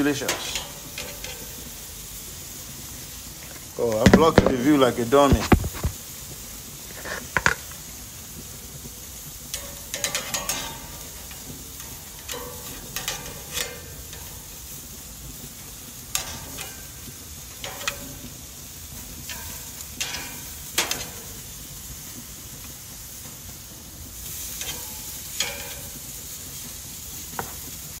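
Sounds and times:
metal tongs scraping grate: 0:00.0 - 0:01.9, 0:09.2 - 0:22.8, 0:24.2 - 0:26.7
meat sizzling on grill: 0:00.0 - 0:28.0.

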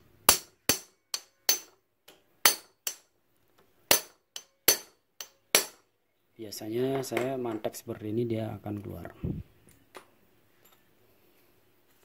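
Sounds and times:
hammer striking metal punch: 0:00.3 - 0:01.8, 0:02.4 - 0:03.0, 0:03.9 - 0:05.8.

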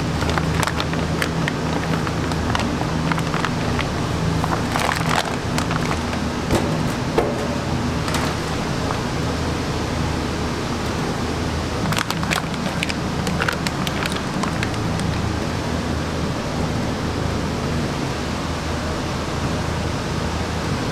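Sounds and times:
plastic wrapping crinkling: 0:00.0 - 0:09.1, 0:11.8 - 0:15.5
steady low hum: 0:00.0 - 0:20.9.

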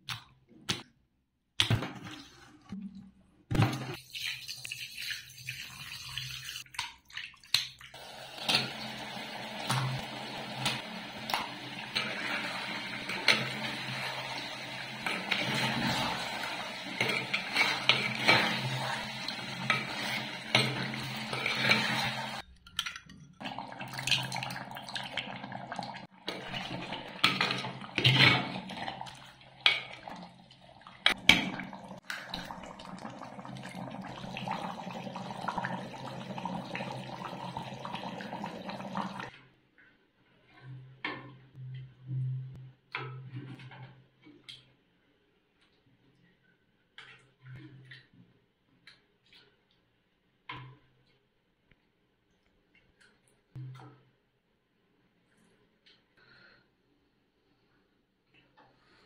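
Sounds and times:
oil sizzling: 0:08.0 - 0:22.4.

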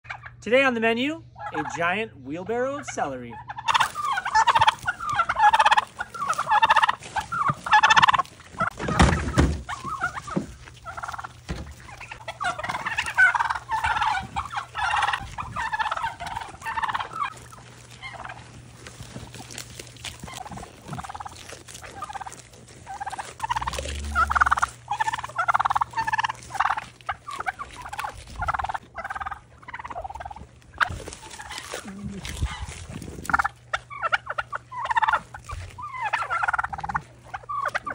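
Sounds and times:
turkeys gobbling: 0:00.0 - 0:37.9
goats crunching celery: 0:02.6 - 0:37.9
dull thump: 0:08.8 - 0:10.5, 0:11.5 - 0:11.9.

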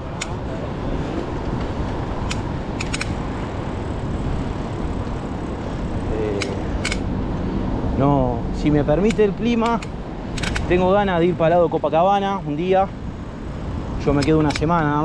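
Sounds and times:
bicycle metallic clicks and rattles: 0:00.0 - 0:00.4, 0:01.2 - 0:07.5, 0:08.9 - 0:11.0, 0:12.6 - 0:15.0
wind rushing on microphone: 0:00.0 - 0:15.0.

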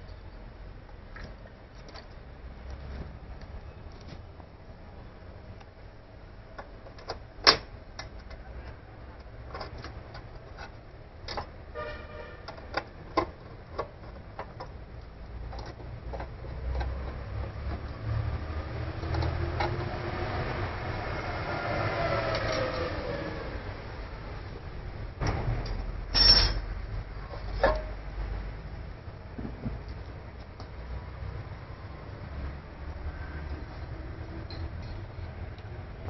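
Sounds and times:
hands handling metal parts: 0:25.2 - 0:28.2.

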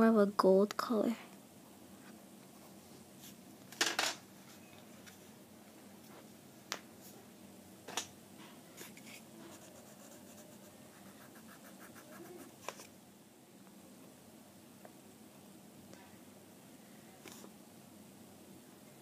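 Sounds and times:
pencil scratching on paper: 0:09.5 - 0:12.6.

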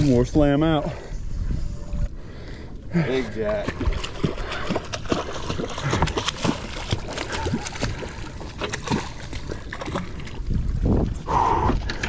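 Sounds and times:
water splashing against boat: 0:03.1 - 0:12.0.

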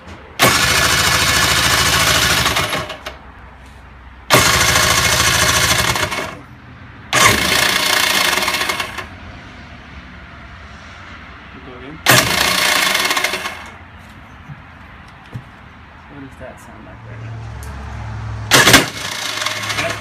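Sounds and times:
engine cranking on electric starter: 0:00.4 - 0:03.2, 0:04.3 - 0:06.5, 0:07.2 - 0:09.1, 0:12.1 - 0:13.8, 0:18.5 - 0:20.0.

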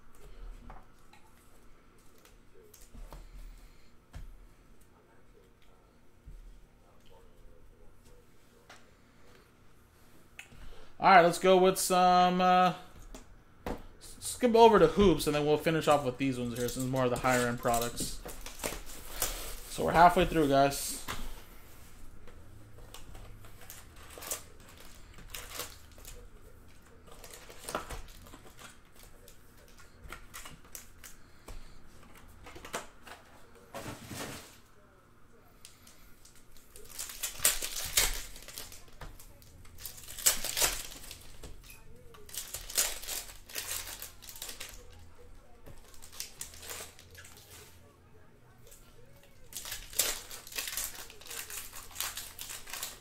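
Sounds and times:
plastic wrappers crinkling and tearing: 0:14.2 - 0:21.4, 0:22.8 - 0:31.8, 0:35.6 - 0:47.8, 0:48.6 - 0:53.0.

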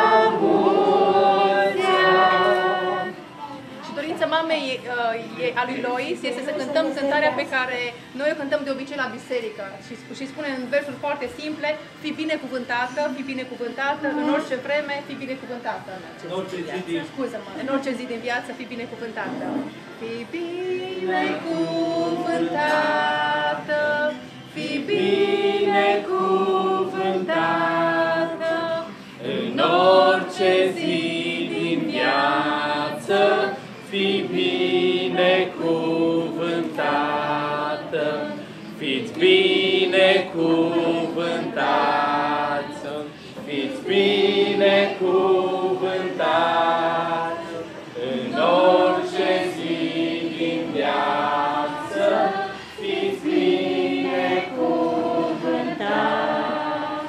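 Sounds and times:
group singing a cappella: 0:00.0 - 0:08.3, 0:13.2 - 0:15.3, 0:19.2 - 0:57.0.

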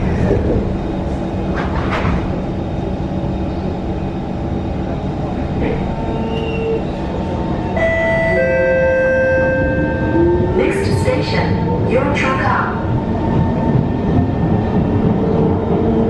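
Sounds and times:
train doors shutting: 0:00.0 - 0:02.6, 0:04.8 - 0:11.1
train rumble and hum: 0:00.0 - 0:16.0.

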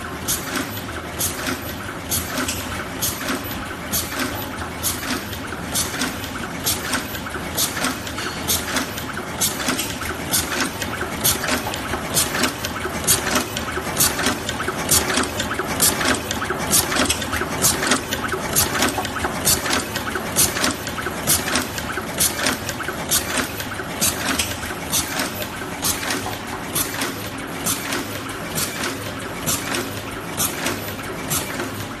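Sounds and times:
machine clacking: 0:00.0 - 0:32.0
steady machine hum: 0:00.0 - 0:32.0.

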